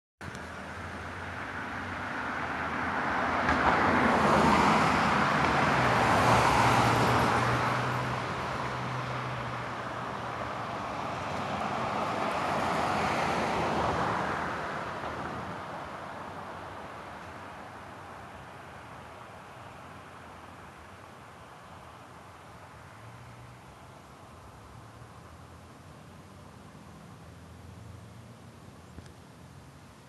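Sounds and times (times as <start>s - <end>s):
vehicle passing: 0.5s - 17.7s.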